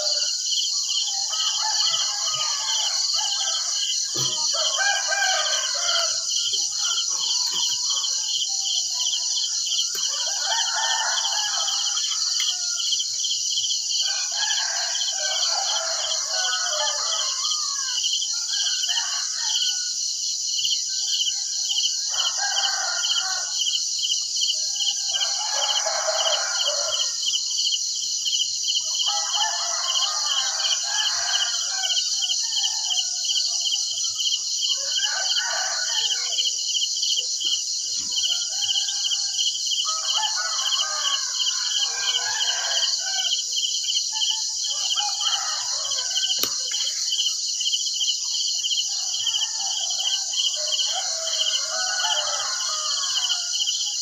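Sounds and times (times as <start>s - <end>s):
roosters crowing: 0.0s - 0.4s, 1.0s - 8.6s, 9.4s - 13.1s, 13.9s - 20.0s, 22.0s - 23.6s, 24.6s - 27.2s, 28.8s - 36.6s, 37.2s - 54.0s
crickets chirping: 0.0s - 54.0s.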